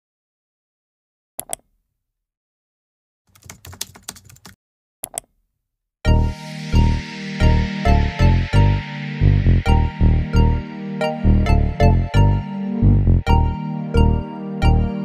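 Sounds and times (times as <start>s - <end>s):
mouse click: 1.4s - 1.7s, 5.0s - 5.3s
rapid keyboard keystrokes: 3.3s - 4.6s
music with heavy bass beat: 6.1s - 13.2s.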